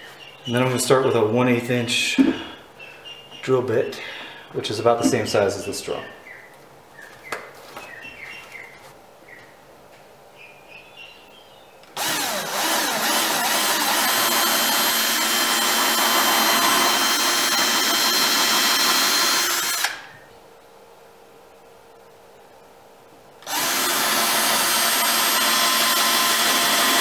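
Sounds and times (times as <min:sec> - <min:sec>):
cordless drill drilling: 0:12.0 - 0:20.1, 0:23.4 - 0:27.0.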